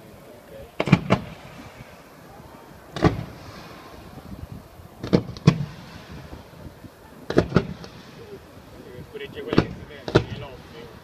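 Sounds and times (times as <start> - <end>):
fireworks exploding: 0.7 - 11.0.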